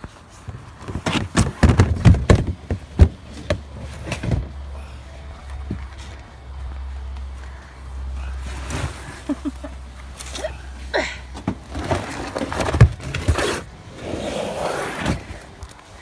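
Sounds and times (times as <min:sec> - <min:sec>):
scuffling and scraping: 0:00.0 - 0:16.0
plastic totes knocking: 0:00.8 - 0:04.5.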